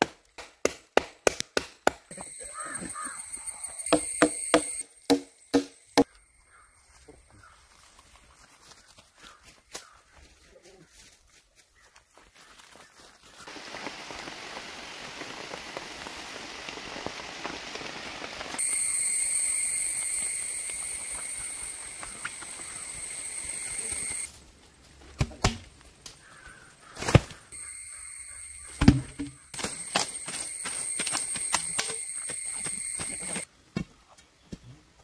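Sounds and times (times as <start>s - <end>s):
rustling hiss: 13.4s - 24.8s
sharp knocks and thuds: 28.8s - 29.4s.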